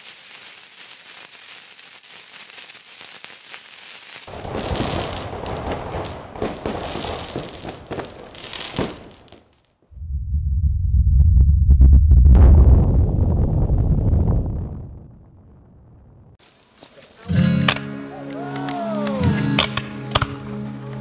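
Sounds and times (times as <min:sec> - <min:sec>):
fireworks sparks hissing: 0:00.0 - 0:05.1, 0:16.4 - 0:17.3
fireworks crackling and banging: 0:00.0 - 0:09.7.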